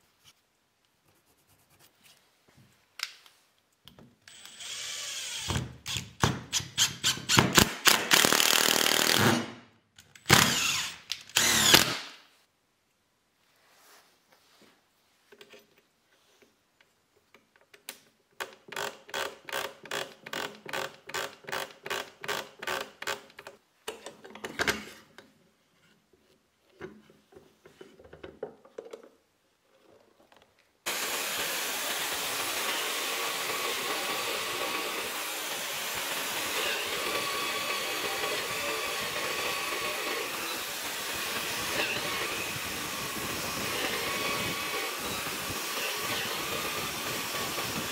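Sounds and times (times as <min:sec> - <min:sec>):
drill press boring wood: 0:04.3 - 0:09.3, 0:10.3 - 0:12.0, 0:30.9 - 0:47.9
dust extractor hiss: 0:30.9 - 0:47.9.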